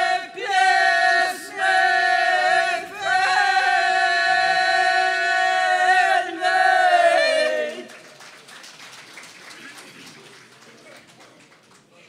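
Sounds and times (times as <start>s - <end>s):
folk group singing a cappella: 0.0s - 7.9s.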